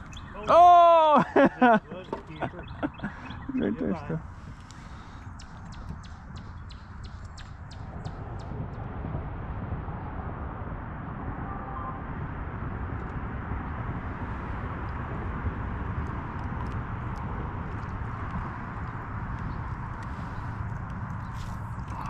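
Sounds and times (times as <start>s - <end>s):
wind and water rumble: 0.0s - 22.0s
quick light ticks: 4.5s - 8.2s.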